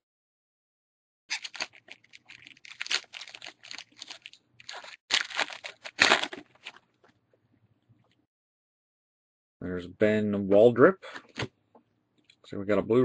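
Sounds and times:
foil wrapper tearing and crinkling: 1.3s - 6.8s.

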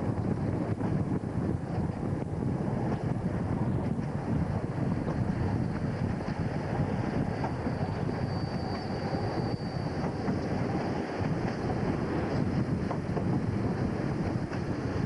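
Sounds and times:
train engine and wheels rumbling: 0.0s - 15.0s
wind on microphone: 0.0s - 15.0s
faint high squeal: 7.1s - 11.0s.

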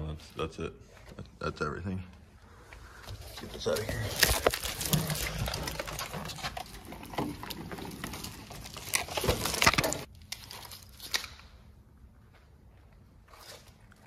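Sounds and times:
wires and connectors rustling: 2.6s - 11.4s.

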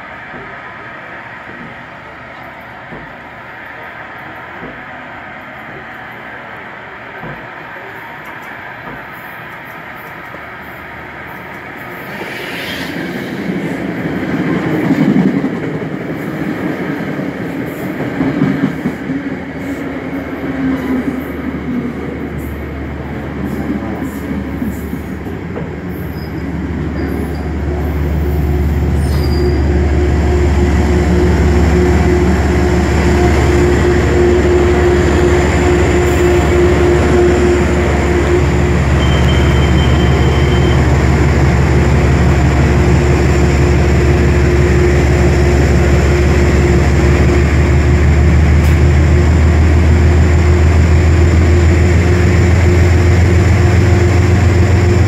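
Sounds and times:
train low drone: 0.0s - 55.0s
train wheels and brakes squealing: 7.2s - 15.2s, 23.4s - 47.6s
short high beep: 39.0s - 40.9s.

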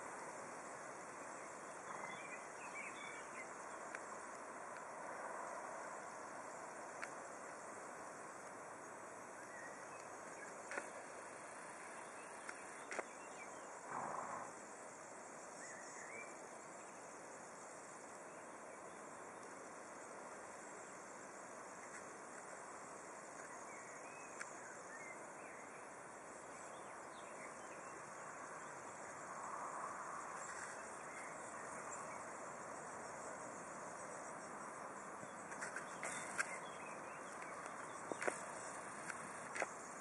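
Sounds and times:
insects: 0.0s - 40.0s
rustle: 0.0s - 40.0s
steady hiss: 0.0s - 40.0s
faint ticks: 3.6s - 5.0s, 6.9s - 7.7s, 9.7s - 13.2s, 19.3s - 20.4s, 21.7s - 24.9s, 32.8s - 40.0s.

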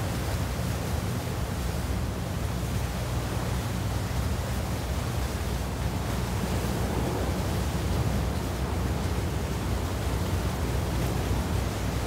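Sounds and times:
wind rumbling on microphone: 0.0s - 12.0s
sea washing on rocky shore: 4.9s - 12.0s.

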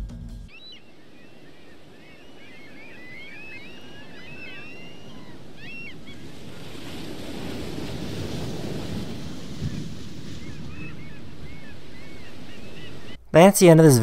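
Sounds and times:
birds chirping and whistling: 0.5s - 6.4s, 9.6s - 13.2s
wind: 0.5s - 14.0s
sea surf: 0.8s - 14.0s.

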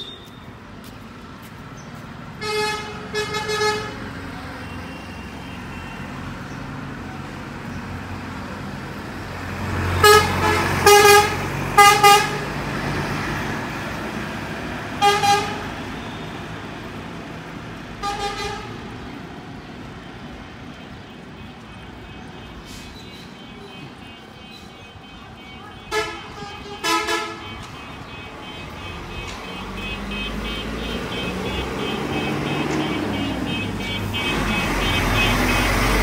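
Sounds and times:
street traffic rumble: 0.0s - 36.0s
vehicle horn tooting: 2.4s - 4.0s, 10.0s - 12.4s, 15.0s - 16.3s, 18.0s - 18.8s, 20.8s - 36.0s
vehicle passing close: 28.6s - 36.0s.

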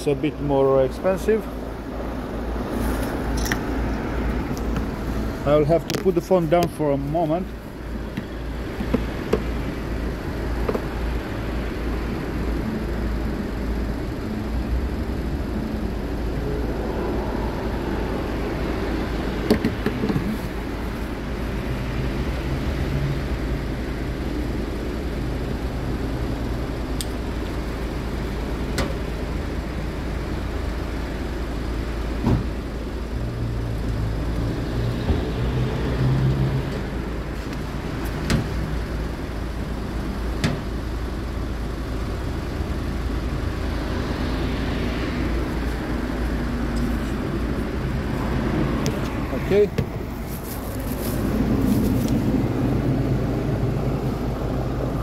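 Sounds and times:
fuel pump humming: 0.0s - 35.4s, 36.6s - 55.0s
low tone: 12.4s - 20.8s.

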